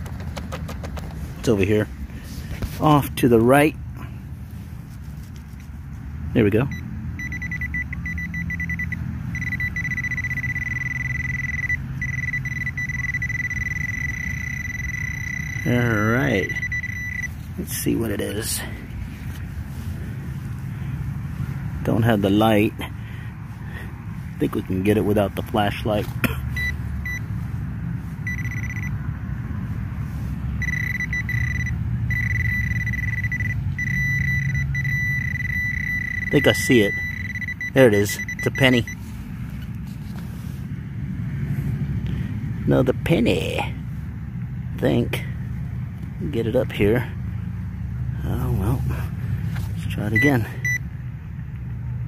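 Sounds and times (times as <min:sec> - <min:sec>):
low steady hum: 0:00.0 - 0:40.7
pinpointer electronic tone: 0:06.7 - 0:17.4, 0:28.3 - 0:29.0, 0:30.6 - 0:39.0.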